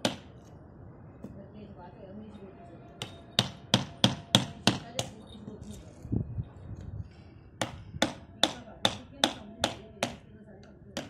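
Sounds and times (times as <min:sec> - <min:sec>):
hammer striking chisel: 0:00.0 - 0:00.3, 0:03.0 - 0:05.2, 0:07.6 - 0:10.3.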